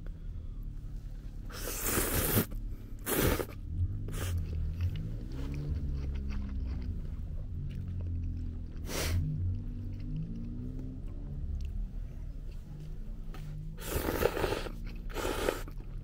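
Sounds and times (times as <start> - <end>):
noodles being slurped: 1.5 - 6.9, 13.8 - 16.0.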